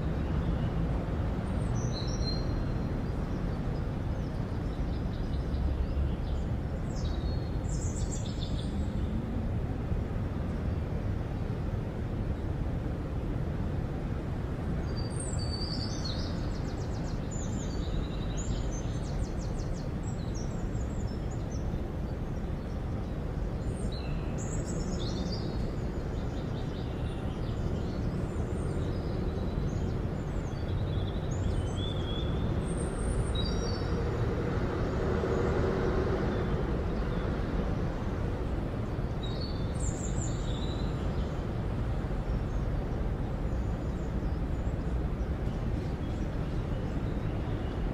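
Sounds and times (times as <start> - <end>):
distant traffic rumble: 0.0 - 47.9
small birds chirping: 36.2 - 47.9.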